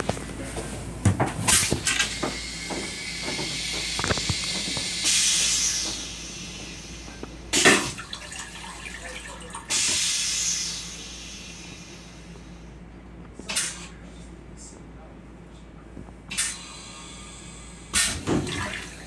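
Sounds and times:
toilet flush whoosh: 0:01.5 - 0:11.9, 0:17.9 - 0:19.0
rinse water hissing: 0:01.6 - 0:12.1.

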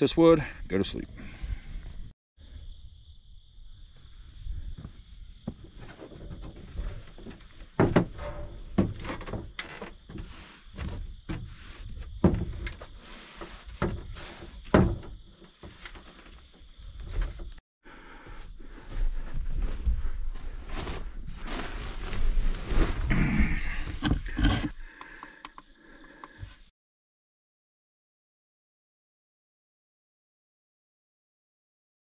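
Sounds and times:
insect chirring: 0:02.4 - 0:07.6
thumps and knocks: 0:05.4 - 0:13.0, 0:13.6 - 0:17.6.

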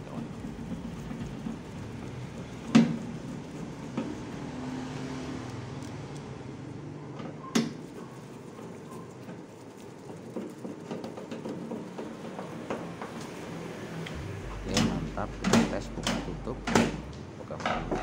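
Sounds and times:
low steady hum: 0:14.0 - 0:18.0.

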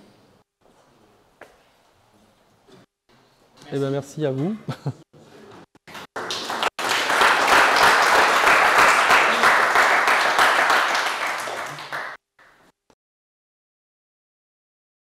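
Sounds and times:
audience applauding: 0:05.9 - 0:12.6.

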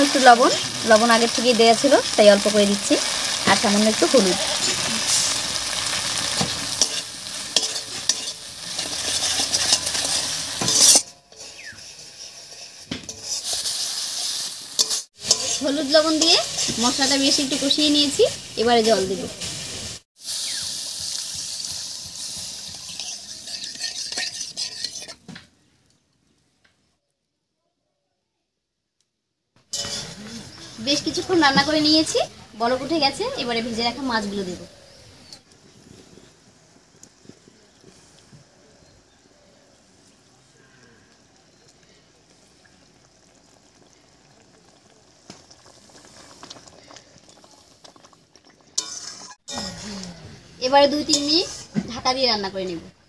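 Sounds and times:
paste sizzling in a pan: 0:00.0 - 0:25.4, 0:29.7 - 0:52.9
metal spatula scraping a pan: 0:03.0 - 0:17.8, 0:21.6 - 0:25.3, 0:29.7 - 0:32.1, 0:48.8 - 0:50.1, 0:50.7 - 0:51.9
gravy bubbling in a pan: 0:34.8 - 0:50.4.

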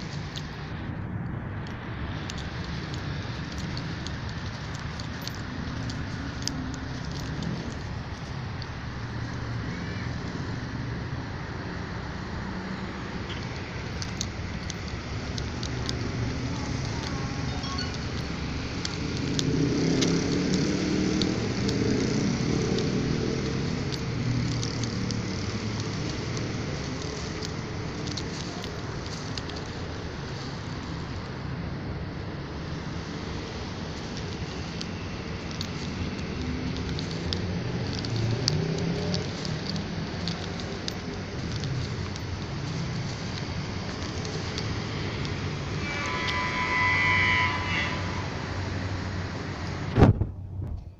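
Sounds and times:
louder vehicle passing: 0:00.0 - 0:50.6
road traffic noise: 0:00.0 - 0:50.9
light clicks and crunches: 0:01.7 - 0:09.5, 0:13.0 - 0:31.4, 0:32.7 - 0:46.5.

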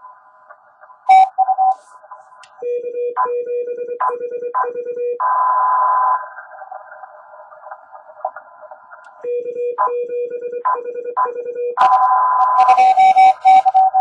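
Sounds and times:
morse code sidetone: 0:01.1 - 0:01.8, 0:09.3 - 0:14.0
radio band hiss: 0:06.2 - 0:09.0.

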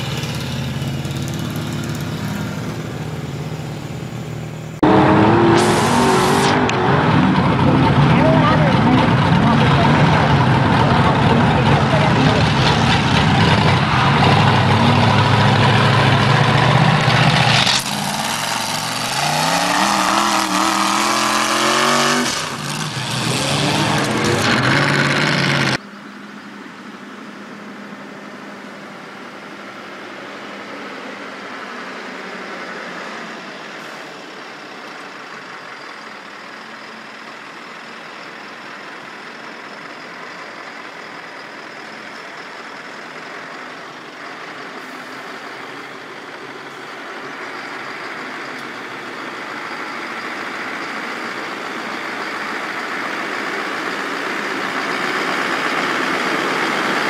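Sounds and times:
truck engine revving: 0:00.0 - 0:25.9, 0:27.2 - 0:57.0.

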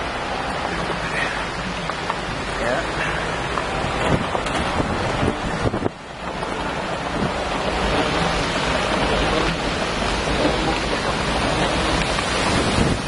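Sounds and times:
storm wind and rain: 0:00.0 - 0:13.0
wind buffeting microphone: 0:03.2 - 0:13.0.

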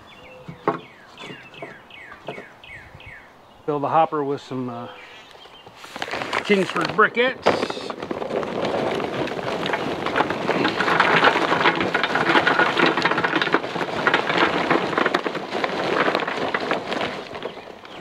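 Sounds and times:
charcoal briquettes clattering: 0:00.5 - 0:02.5, 0:05.8 - 0:18.0.

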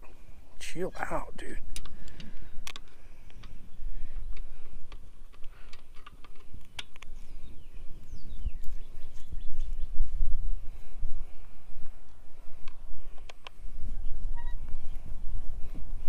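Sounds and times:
wind rumble on microphone: 0:01.5 - 0:16.0
bird chirping: 0:07.0 - 0:10.2.

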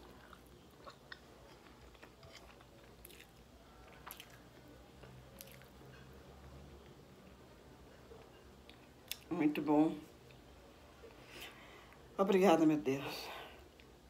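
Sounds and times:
chewing and lip smacking: 0:00.0 - 0:04.7, 0:05.3 - 0:06.0.

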